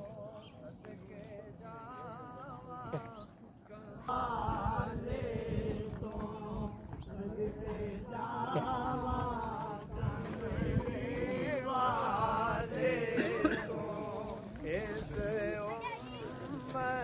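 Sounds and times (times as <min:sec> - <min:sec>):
man singing devotional song: 0:00.0 - 0:17.0.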